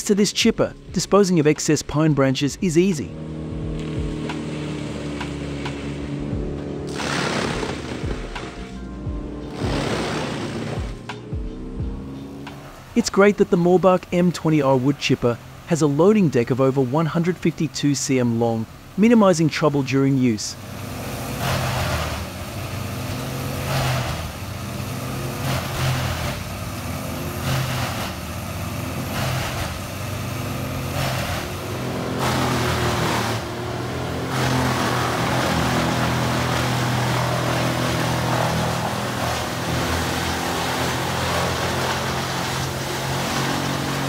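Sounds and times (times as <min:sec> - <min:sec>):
wood chipper engine: 0:02.8 - 0:11.2, 0:20.5 - 0:44.0
branches being chipped: 0:21.0 - 0:44.0.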